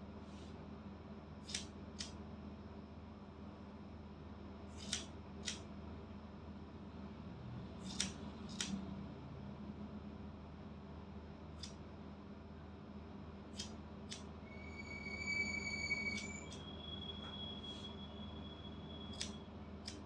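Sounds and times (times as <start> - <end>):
scissors snipping hair: 1.5 - 2.2, 4.8 - 5.6, 7.8 - 8.8, 11.6 - 11.8, 13.6 - 14.3.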